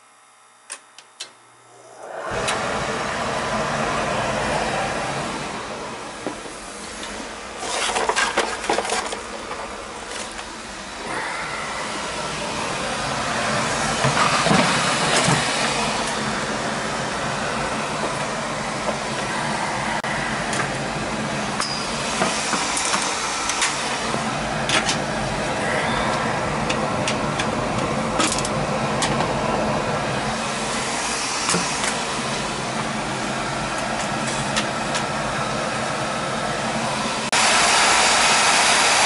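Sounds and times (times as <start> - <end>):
oil burner rushing: 1.6 - 39.0.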